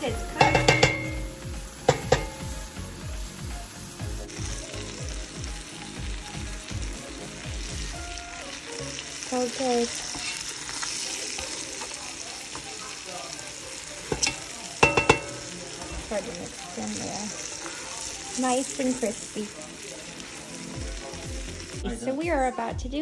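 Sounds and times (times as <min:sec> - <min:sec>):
shrimp sizzling in a pot: 0:00.0 - 0:22.7
utensil clinking against pot: 0:00.4 - 0:02.5, 0:14.1 - 0:15.6.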